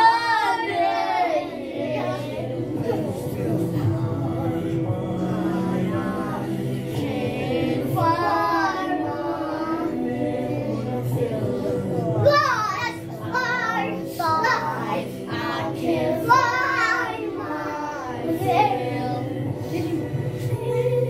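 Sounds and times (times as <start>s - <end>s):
music playing: 0.0s - 21.0s
girl singing: 12.1s - 21.0s.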